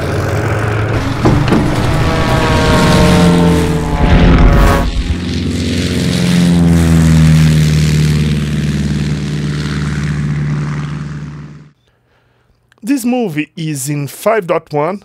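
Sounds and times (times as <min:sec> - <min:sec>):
propeller airplane engine drone: 0:00.0 - 0:12.0
whoosh: 0:00.9 - 0:05.8.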